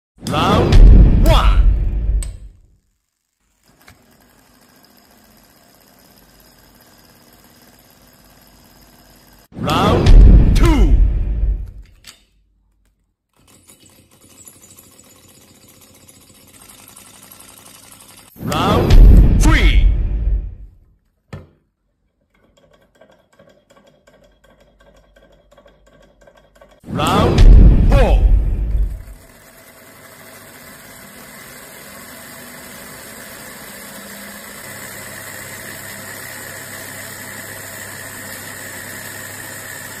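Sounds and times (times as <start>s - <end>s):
low hum: 0.3s - 2.7s, 9.6s - 12.0s, 18.4s - 20.8s, 26.9s - 29.3s
small engine rapid mechanical clatter: 2.3s - 9.5s, 13.3s - 19.0s, 22.1s - 26.9s, 28.7s - 40.0s.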